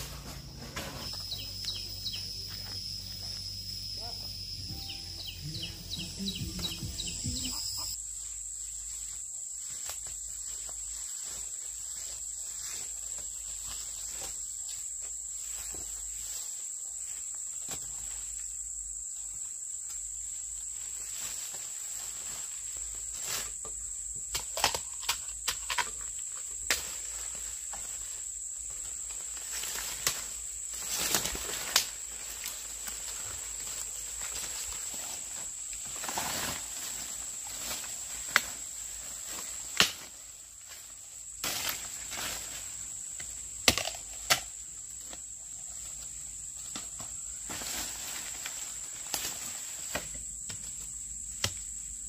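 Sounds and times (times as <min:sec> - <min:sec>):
faint outdoor background: 0:00.0 - 0:52.0
high-pitched insect song: 0:00.0 - 0:52.0.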